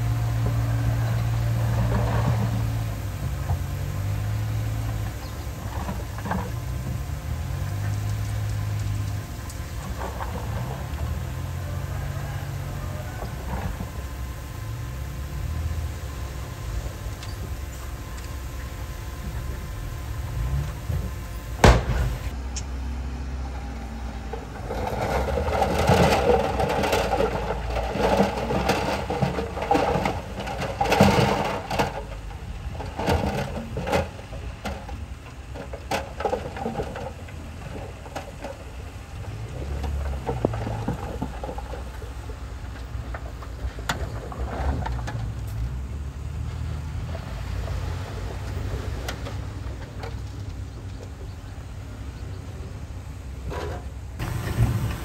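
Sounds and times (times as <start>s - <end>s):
heavy machinery diesel engine: 0.0s - 55.0s
clatter and knocking: 0.2s - 14.0s, 24.3s - 46.0s.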